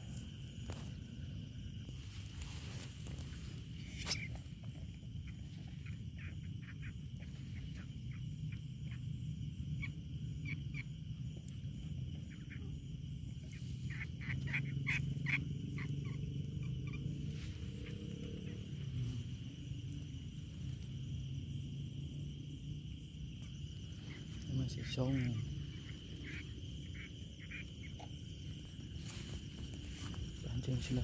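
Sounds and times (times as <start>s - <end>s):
frogs croaking: 0.0s - 31.0s
insects trilling: 0.0s - 31.0s.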